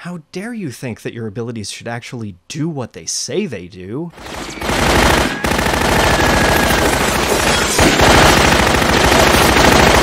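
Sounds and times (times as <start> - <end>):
rapid machine-gun fire: 4.2 - 10.0.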